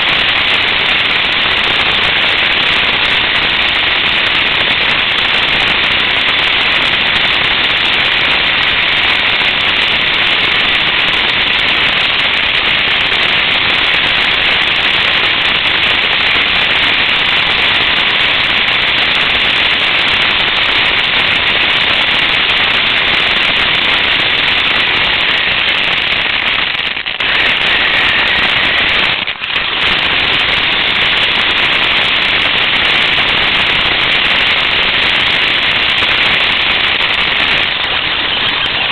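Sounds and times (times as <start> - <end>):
radio-controlled car motor and tyres: 24.8 - 38.9.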